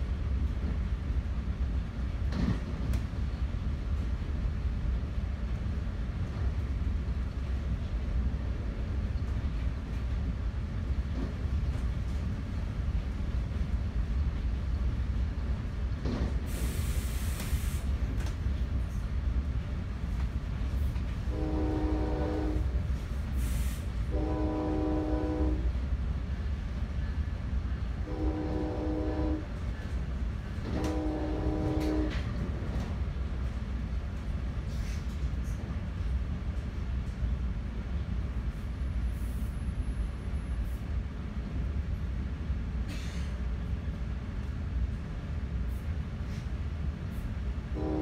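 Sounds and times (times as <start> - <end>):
moving train rumble: 0.0 - 48.0
brief hiss: 16.5 - 17.9, 23.4 - 23.9, 42.9 - 43.4
train horn blasts: 21.2 - 22.9, 24.0 - 25.8, 28.0 - 29.7, 30.6 - 32.4, 47.7 - 48.0.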